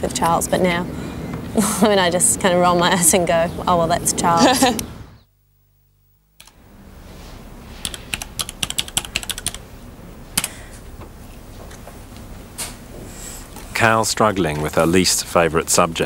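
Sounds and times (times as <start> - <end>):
low room hiss: 0.0 - 16.0
computer keyboard typing: 7.8 - 9.6.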